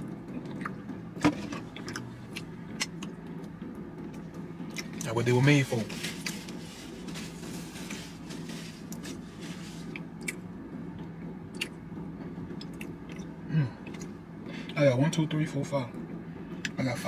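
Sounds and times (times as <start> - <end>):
steady low hum: 0.0 - 17.0
paper napkin rustling: 5.5 - 10.0.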